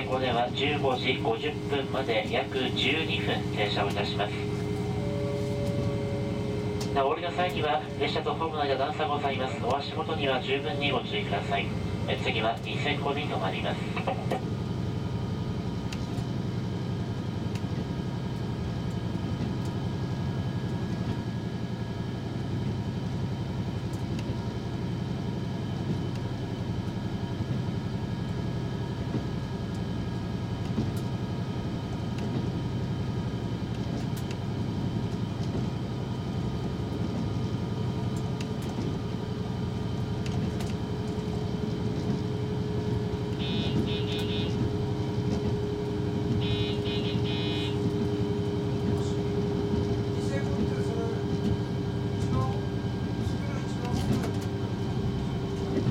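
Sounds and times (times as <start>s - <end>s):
steady hum: 0.0s - 14.4s
train engine and wheels rumbling: 0.0s - 55.9s.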